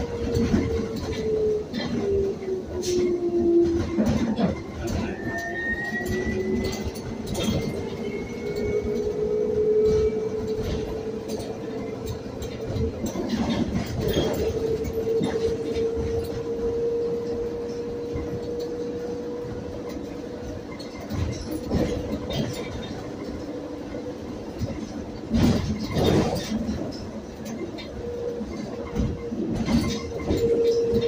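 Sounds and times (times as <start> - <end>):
electric bus motor whine: 0.0 - 26.1.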